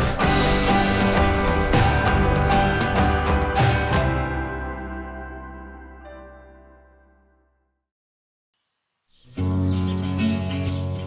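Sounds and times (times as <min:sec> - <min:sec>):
background music: 0:00.0 - 0:07.5, 0:09.3 - 0:11.0.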